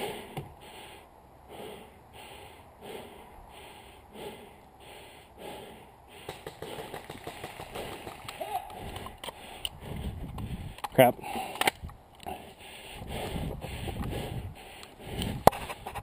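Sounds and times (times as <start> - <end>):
person breathing heavily: 0.0 - 7.1, 7.7 - 15.8
gear clicks and rustles: 6.3 - 12.6.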